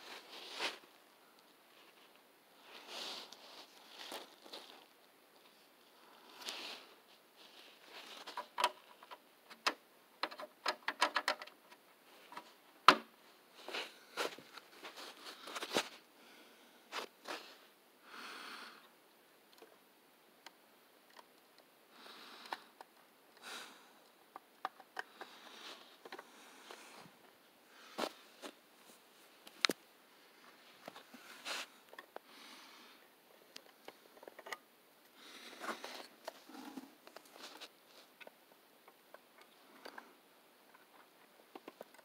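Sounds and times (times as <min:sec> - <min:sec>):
soft rustles: 0:00.0 - 0:09.0, 0:13.2 - 0:16.1, 0:16.9 - 0:17.7, 0:25.1 - 0:32.1, 0:35.2 - 0:38.4
plastic toy trucks clicking: 0:08.2 - 0:13.1.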